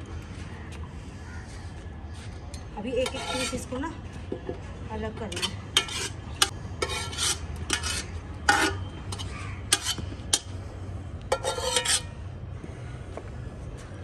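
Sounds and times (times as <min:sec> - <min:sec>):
potato slices scraping: 0:05.3 - 0:08.6.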